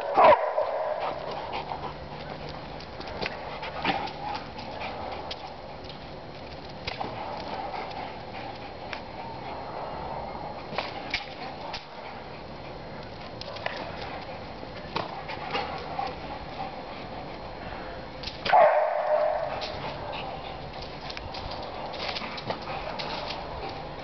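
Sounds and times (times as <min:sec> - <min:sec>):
dog claws clicking on bricks: 0:20.6 - 0:24.0.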